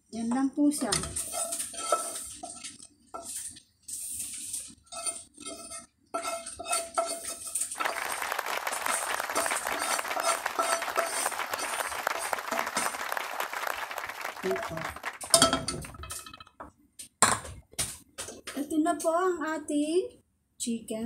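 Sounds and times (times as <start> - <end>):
wooden spatula scraping frying pan: 0.8 - 7.8, 9.4 - 11.3.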